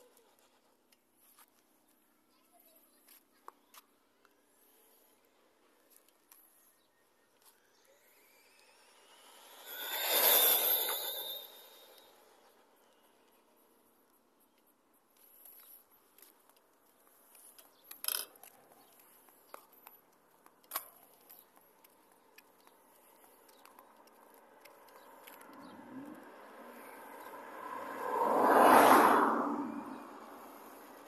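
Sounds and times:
toy car rushing past: 7.6s - 12.8s, 26.8s - 30.0s.

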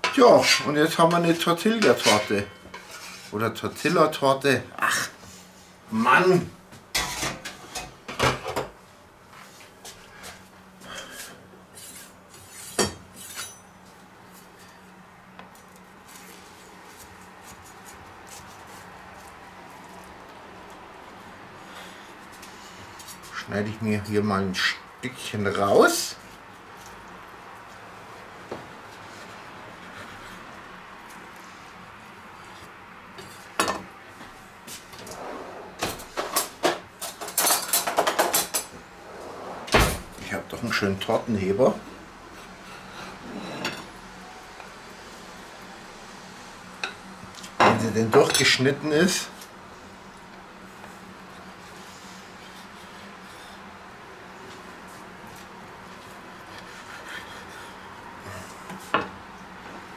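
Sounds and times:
cutlery clattering: 1.8s - 2.6s, 36.2s - 38.7s
cutlery clink: 1.8s - 2.9s
drawer opening: 39.1s - 40.2s.

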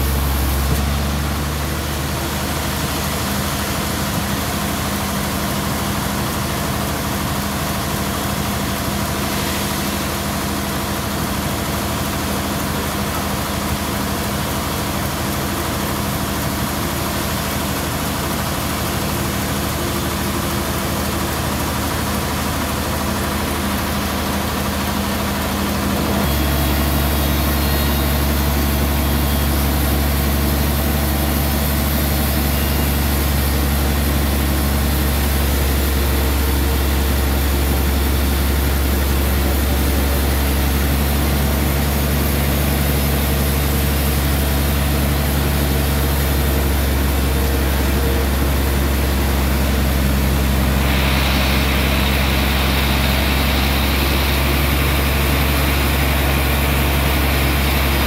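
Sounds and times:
band saw cutting log: 26.2s - 58.0s.

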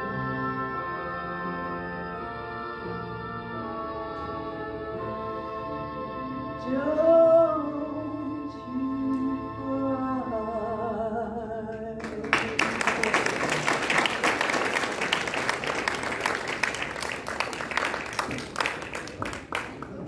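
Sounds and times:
audience applause: 12.0s - 20.0s.

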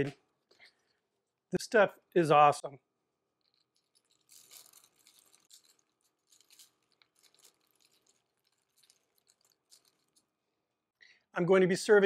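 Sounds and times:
parchment paper crinkling: 3.4s - 10.4s.

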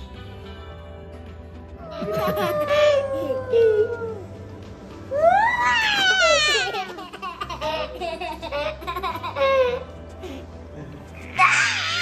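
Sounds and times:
background music: 0.0s - 12.0s
toddler laughing: 1.9s - 3.7s, 5.8s - 9.9s.

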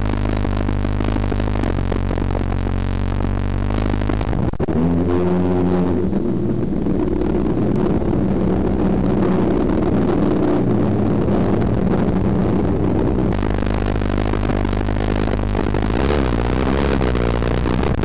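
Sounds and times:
car engine running hard: 0.0s - 18.0s.

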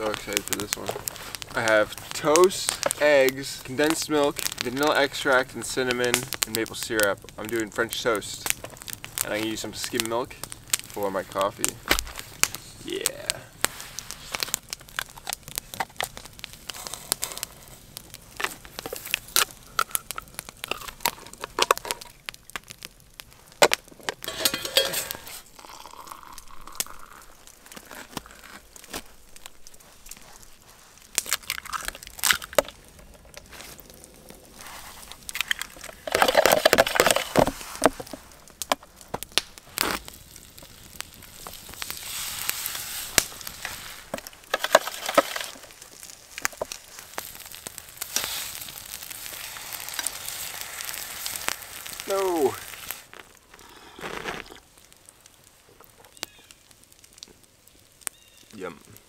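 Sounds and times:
camp cooking handling noises: 0.0s - 58.8s
wood fire crackling and popping: 0.0s - 59.0s
rustling: 23.2s - 58.4s.

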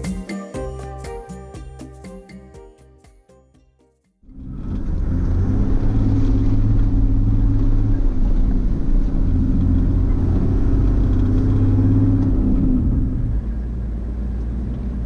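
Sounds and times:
car engine droning: 4.2s - 15.0s.

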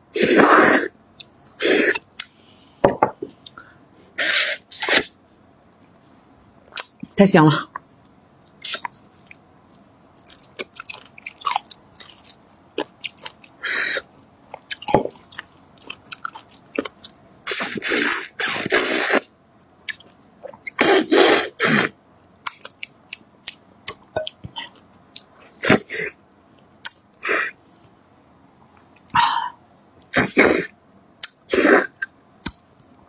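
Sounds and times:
wet chewing and sucking: 10.1s - 23.2s.

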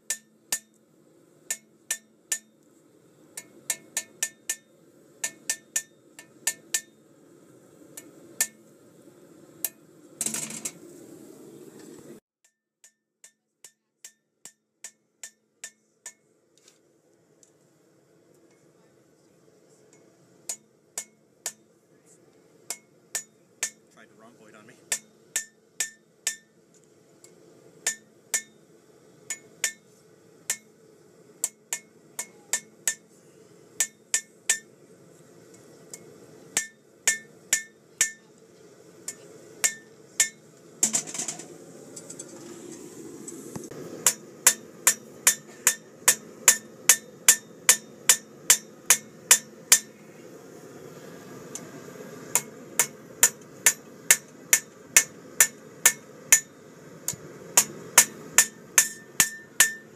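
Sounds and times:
hammer ringing on anvil: 36.6s - 38.2s, 44.0s - 49.9s, 57.6s - 59.9s.

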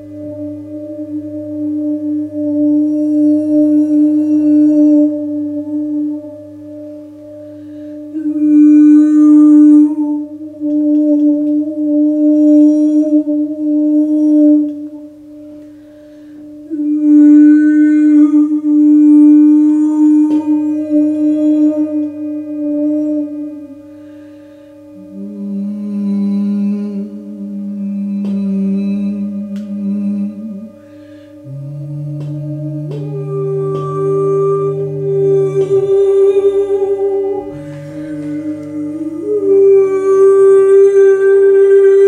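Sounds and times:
singing bowl ringing: 16.7s - 42.0s.

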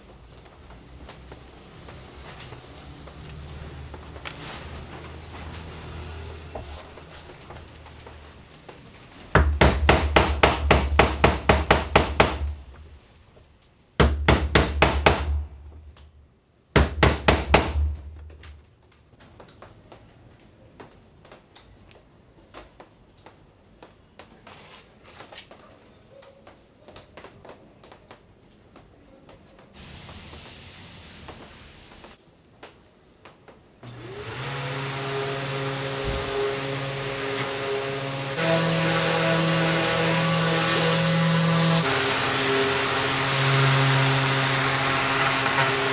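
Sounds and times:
hammer striking wood: 9.3s - 12.9s, 14.0s - 15.9s, 16.7s - 18.6s, 44.2s - 45.9s.

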